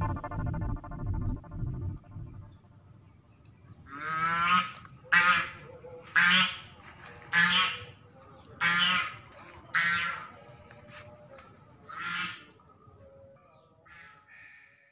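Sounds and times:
waterfowl hoarse calls: 6.2 - 8.0.

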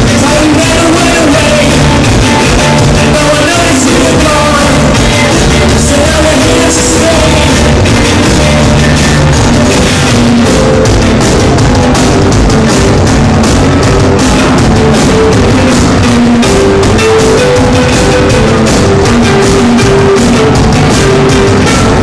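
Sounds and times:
live rock band playing: 0.0 - 22.0.

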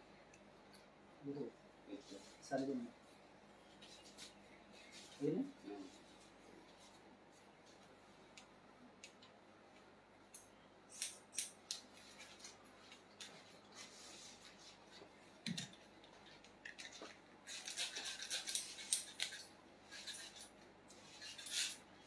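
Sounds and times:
scissors snipping hair: 10.3 - 12.0, 17.5 - 19.5.

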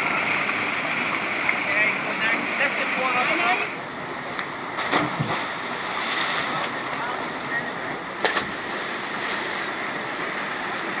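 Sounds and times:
river and waterfall rushing: 0.0 - 4.0
sharp knock or splash: 4.8 - 5.4.

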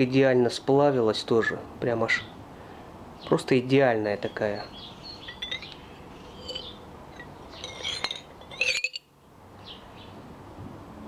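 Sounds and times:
small birds chirping: 3.1 - 8.2
bead clinking against glass: 5.2 - 9.1.

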